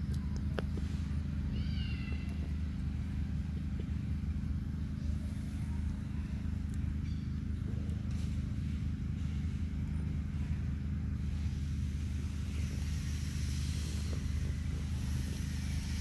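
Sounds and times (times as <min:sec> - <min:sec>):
steady low rumble: 0:00.0 - 0:16.0
monkey high-pitched call: 0:01.5 - 0:02.5.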